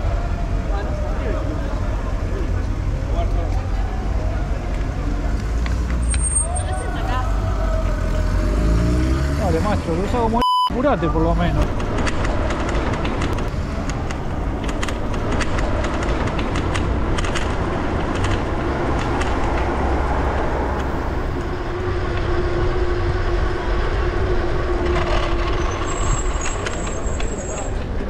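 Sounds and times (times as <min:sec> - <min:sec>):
bicycle road rumble: 0:00.0 - 0:28.0
sharp clicks and rattles: 0:11.6 - 0:21.5
wind buffeting microphone: 0:11.7 - 0:28.0.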